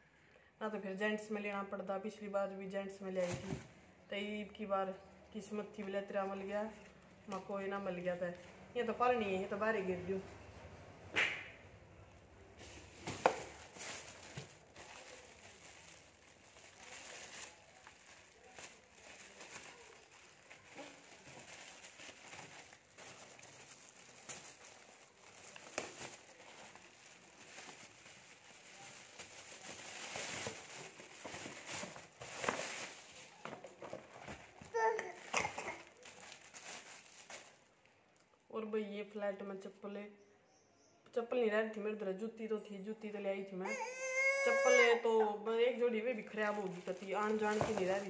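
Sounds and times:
plastic bag crinkling: 12.1s - 38.0s, 46.1s - 48.0s.

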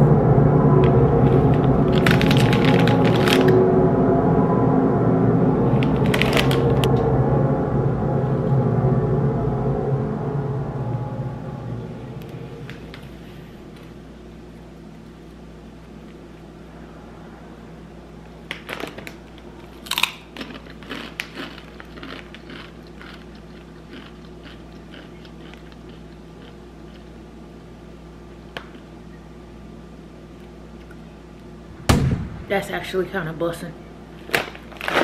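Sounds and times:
steady low hum: 0.0s - 35.0s
chips crunching: 1.3s - 3.6s, 5.8s - 6.9s, 18.6s - 27.1s, 34.2s - 35.0s
chewing crunches: 19.6s - 27.2s.

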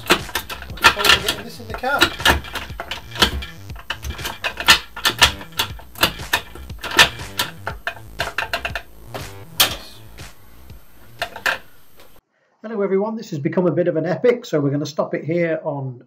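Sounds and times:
gear stick clicking into gears: 0.0s - 10.3s.

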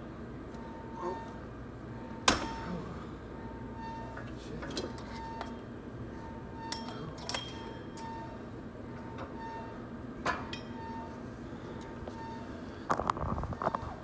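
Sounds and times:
weight machine metal clinks: 6.7s - 8.2s.

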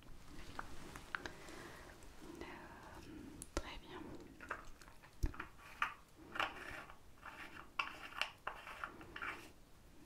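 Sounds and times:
fingers rustling and scratching: 4.4s - 9.6s.

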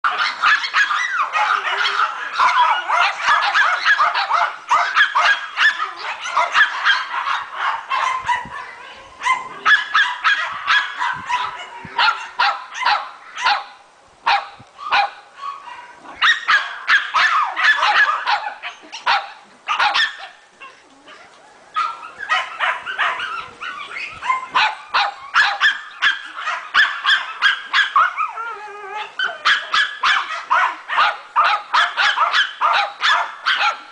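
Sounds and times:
puppy yapping: 14.3s - 33.8s.

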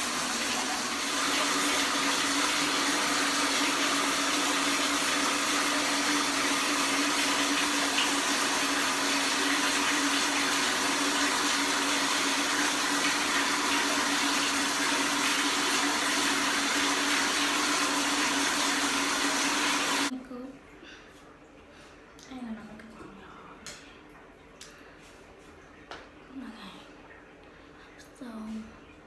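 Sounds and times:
water running from tap: 0.0s - 20.1s.

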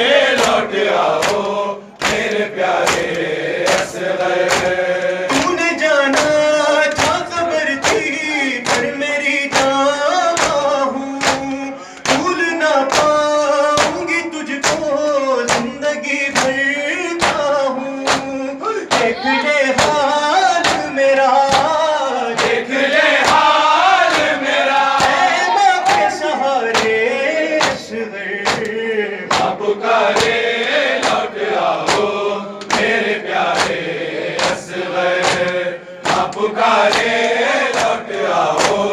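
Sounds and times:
men chanting in unison: 0.0s - 38.9s
men reciting into a microphone: 0.0s - 38.9s
chest beating slaps: 0.4s - 8.9s, 18.1s - 19.2s, 20.6s - 21.8s, 23.2s - 27.0s, 27.6s - 38.9s.

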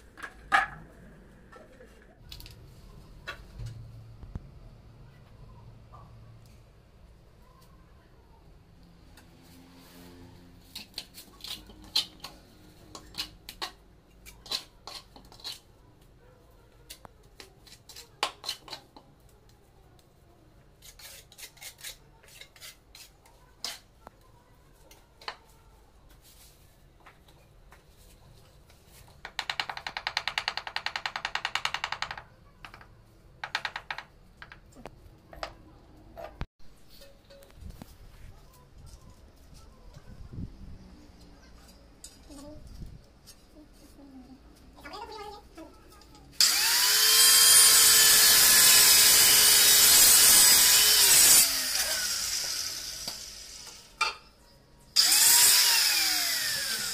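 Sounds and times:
trowel scraping tile and mortar: 9.8s - 15.7s, 20.8s - 23.9s.

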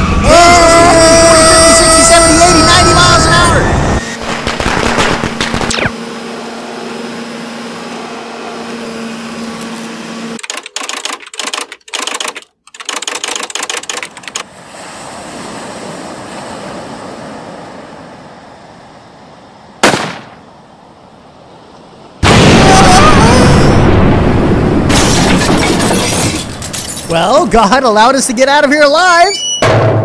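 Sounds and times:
steady humming drone: 0.0s - 10.4s
choppy stuttering crackle: 4.2s - 5.9s
sharp bang: 19.8s - 20.4s, 29.6s - 30.0s.

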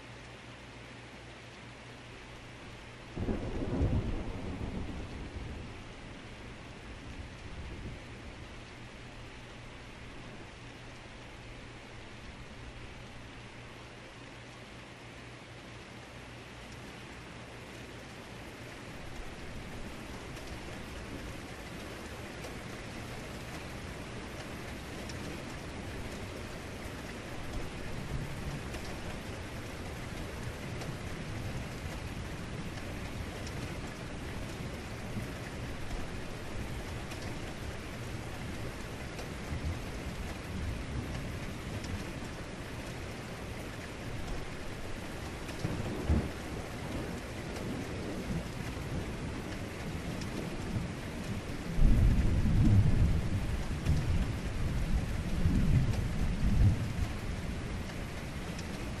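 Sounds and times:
heavy rain falling: 0.0s - 59.0s
low thunder rumbling: 3.2s - 8.9s, 18.6s - 59.0s.

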